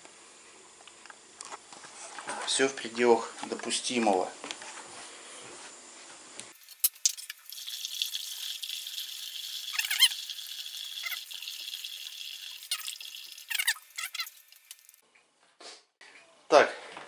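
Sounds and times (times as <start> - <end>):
water trickling through a funnel: 6.6 - 15.0.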